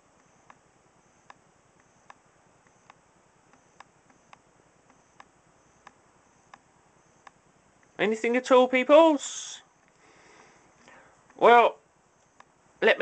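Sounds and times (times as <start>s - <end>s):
faint sharp ticks: 1.2s - 6.6s.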